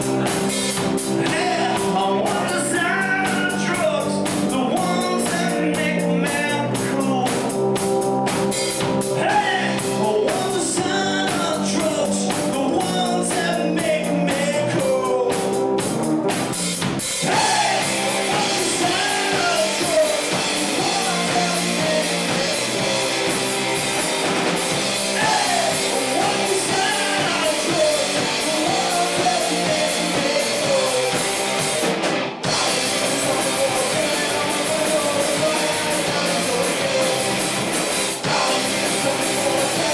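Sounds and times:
man singing: 0.0s - 7.8s, 9.0s - 15.8s, 17.2s - 24.2s, 24.8s - 39.9s
drum kit: 0.0s - 39.9s
electric guitars: 0.0s - 39.9s.

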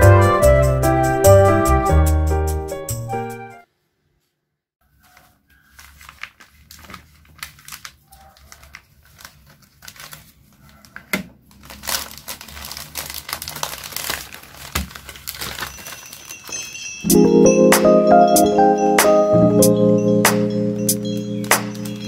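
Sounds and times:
plastic mailer crinkling: 4.9s - 17.1s, 20.9s - 22.0s.

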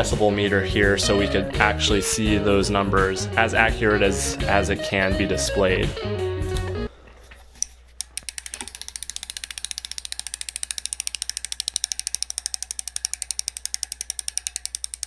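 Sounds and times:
bicycle hub ratchet clicking: 8.0s - 15.0s.

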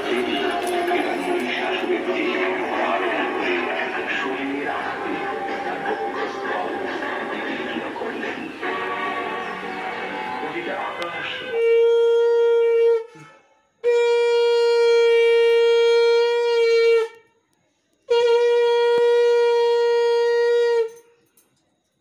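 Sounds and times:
conch shell blasts: 11.3s - 17.2s, 18.1s - 21.0s.

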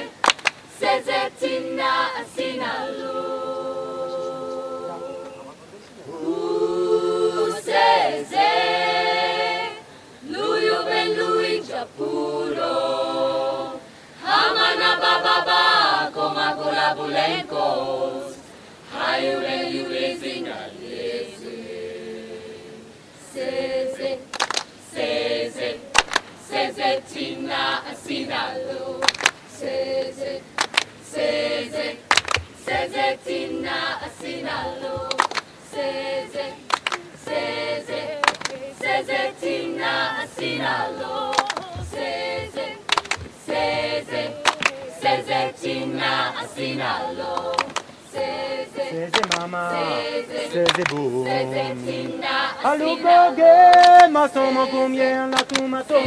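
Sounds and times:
women singing a cappella: 0.0s - 56.0s
hand claps: 0.2s - 0.6s, 24.3s - 24.7s, 25.9s - 26.3s, 29.0s - 29.4s, 30.6s - 30.9s, 32.1s - 33.0s, 34.2s - 35.5s, 36.7s - 37.3s, 38.2s - 39.0s, 41.3s - 45.2s, 47.3s - 47.9s, 49.1s - 49.8s, 50.6s - 52.2s, 53.6s - 54.2s, 55.3s - 56.0s.

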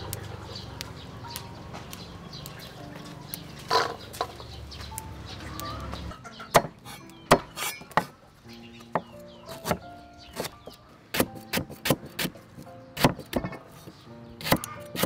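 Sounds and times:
chickens clucking: 0.0s - 10.9s
small birds calling: 0.0s - 15.0s
soft background music: 0.0s - 15.0s
cleaver chopping on wooden board: 6.5s - 8.1s, 9.0s - 9.8s, 10.4s - 12.4s, 13.0s - 13.6s, 14.4s - 15.0s.

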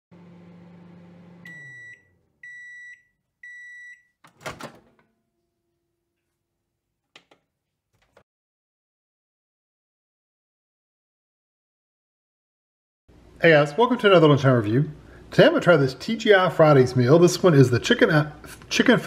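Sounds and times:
microwave oven humming: 0.1s - 2.8s
microwave beeps: 1.2s - 4.2s.

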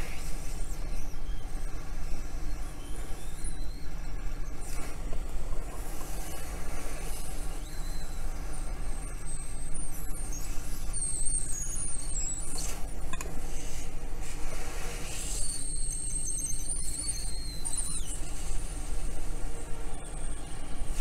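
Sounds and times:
hot air station blowing: 0.0s - 11.0s, 12.0s - 16.1s
thin high whine: 0.0s - 21.0s.

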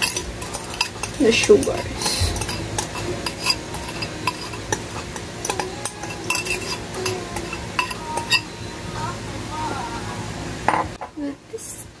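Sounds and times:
glass bowl clinking on steel bowl: 0.0s - 8.6s.

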